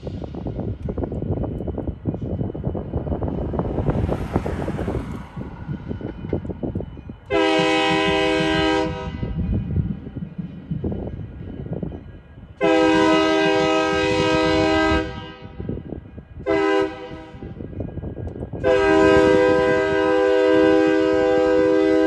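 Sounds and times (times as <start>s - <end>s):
locomotive air horn blasts: 7.3s - 9.4s, 12.6s - 15.7s, 16.4s - 17.6s, 18.6s - 22.0s.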